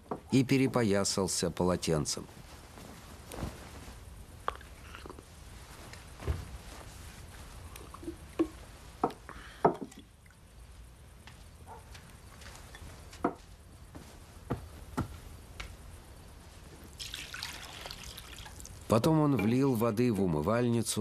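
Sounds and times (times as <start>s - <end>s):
water pouring into basin: 17.0s - 18.9s.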